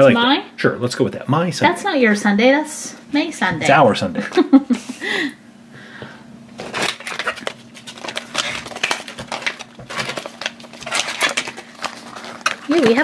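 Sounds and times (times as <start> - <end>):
cardboard box packaging tearing: 6.7 - 13.0.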